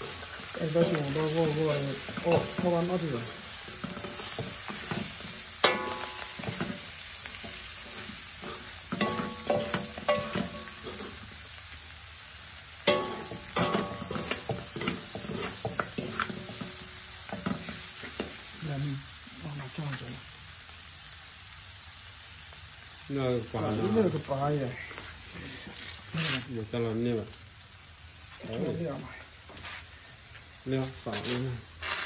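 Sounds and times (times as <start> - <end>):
meat sizzling in a wok: 0.0 - 32.0
spoon knocking on ringing wok: 3.8 - 7.6, 8.4 - 11.1, 12.8 - 18.3.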